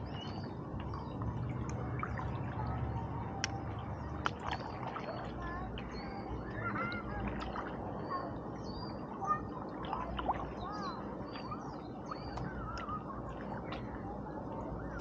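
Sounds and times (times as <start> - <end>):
water drips: 0.0 - 8.7
small birds chirping: 0.0 - 15.0
water noise: 0.0 - 15.0.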